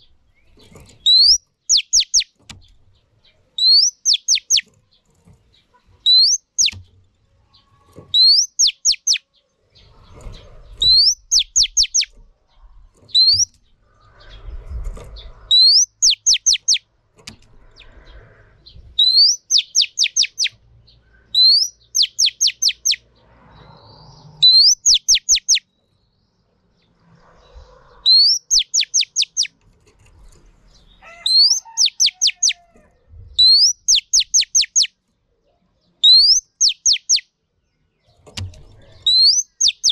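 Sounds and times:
bird whistling call: 1.1 - 2.3, 3.6 - 4.6, 6.1 - 6.8, 8.2 - 9.2, 10.8 - 12.1, 13.2 - 13.5, 15.5 - 16.8, 19.0 - 20.6, 21.4 - 23.0, 24.4 - 25.6, 28.0 - 29.5, 31.2 - 32.6, 33.4 - 34.9, 36.0 - 37.2, 39.0 - 39.9.

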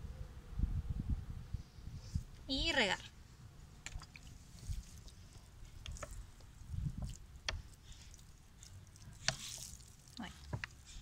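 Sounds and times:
water pattering onto soil: 3.6 - 11.0.

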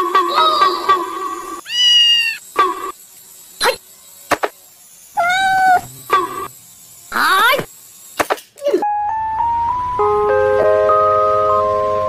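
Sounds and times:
kitten meowing: 1.6 - 2.4.

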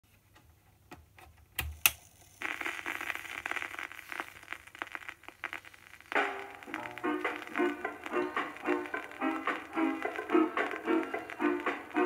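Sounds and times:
vinyl crackle and surface noise: 0.1 - 12.0
song from small speaker: 6.0 - 12.0.

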